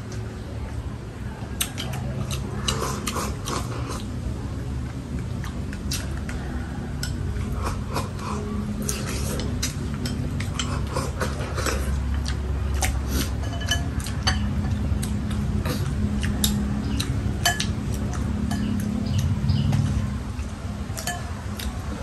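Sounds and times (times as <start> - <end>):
utensils clinking against plates: 7.0 - 20.0, 21.0 - 22.0.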